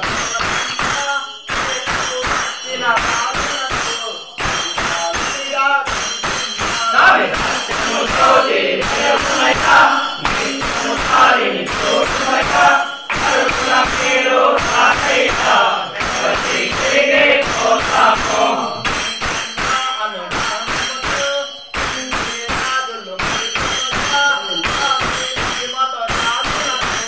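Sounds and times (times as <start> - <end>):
clinking hand bells: 0.0 - 27.0
group of men singing: 6.7 - 18.9.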